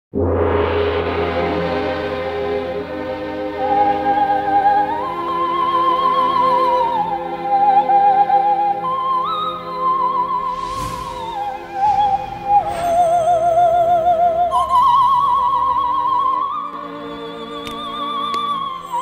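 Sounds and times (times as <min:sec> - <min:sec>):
rushing whoosh: 0:10.2 - 0:14.6.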